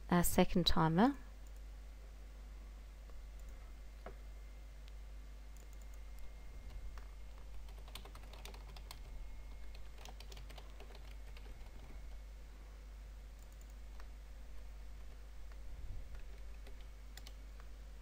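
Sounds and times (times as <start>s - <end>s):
keyboard typing clicks: 5.6s - 6.0s, 7.3s - 9.1s, 9.7s - 12.0s, 13.4s - 14.1s, 15.5s - 17.7s.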